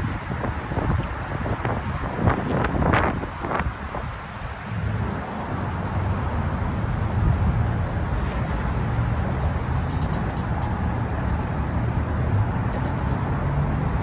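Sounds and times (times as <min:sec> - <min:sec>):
car road rumble: 0:00.0 - 0:14.0.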